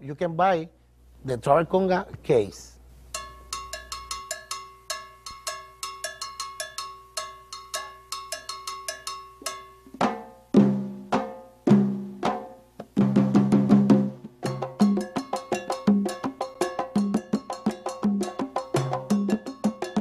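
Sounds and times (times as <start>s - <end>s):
ringing bell pattern: 3.1s - 10.5s, 14.5s - 20.0s.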